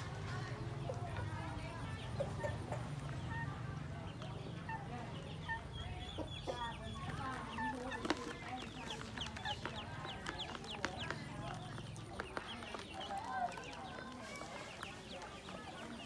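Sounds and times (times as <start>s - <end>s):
ducklings peeping: 0.1s - 16.0s
hen clucking: 0.8s - 13.0s.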